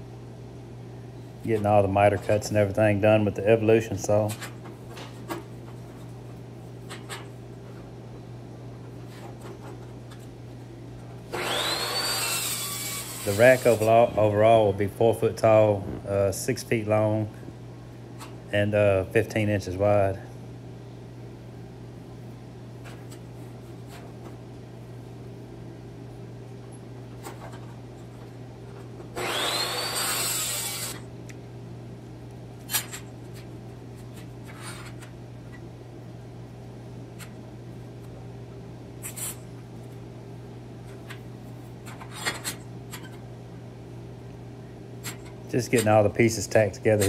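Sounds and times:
low shop hum: 0.0s - 47.0s
power tool whining: 11.3s - 13.9s, 29.2s - 31.0s.

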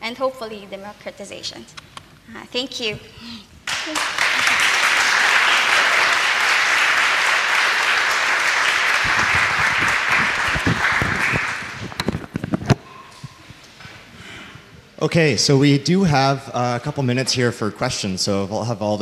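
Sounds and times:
audience applauding: 3.7s - 12.3s.

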